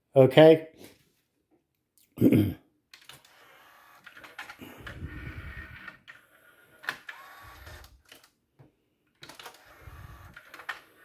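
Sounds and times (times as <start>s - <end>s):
small motor whirring: 3.2s - 8.1s, 9.4s - 11.0s
mechanism clicks and clunks: 9.2s - 10.9s.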